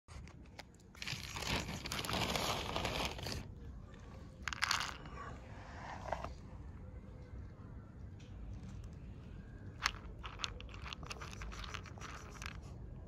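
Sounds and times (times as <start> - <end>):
kibble crinkling and rustling: 0.1 - 5.3, 9.6 - 12.8
kibble rattling into plastic bowl: 0.9 - 3.4, 4.4 - 5.2, 9.8 - 12.7.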